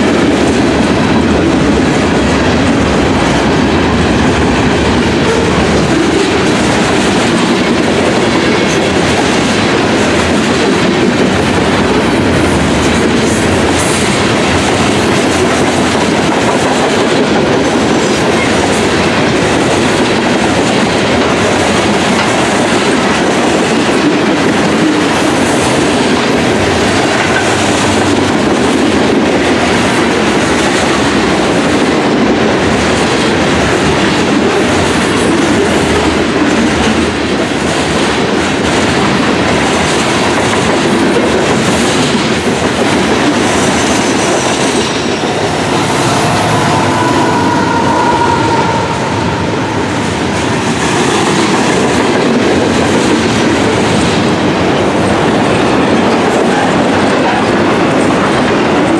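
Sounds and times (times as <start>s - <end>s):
steel wheels clattering on rails: 0.0s - 58.9s
high wheel squeal: 45.0s - 50.7s.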